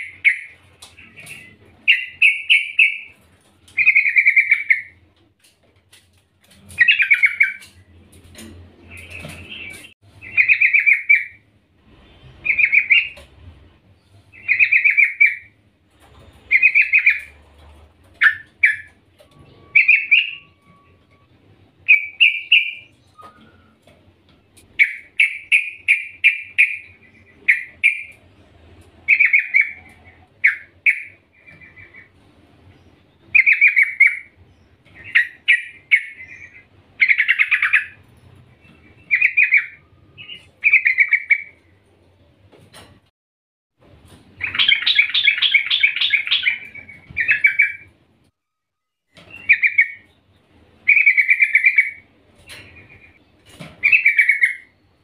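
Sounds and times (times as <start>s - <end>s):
bird chattering calls: 35.0s - 38.0s, 44.4s - 47.9s, 50.8s - 52.1s, 53.8s - 54.7s.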